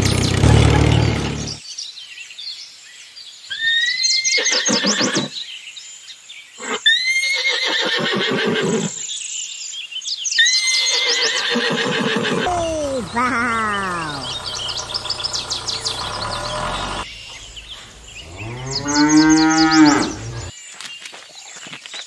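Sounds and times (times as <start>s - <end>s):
horse whinnying: 3.5s - 5.4s, 6.6s - 9.0s, 10.4s - 14.4s, 16.3s - 20.5s.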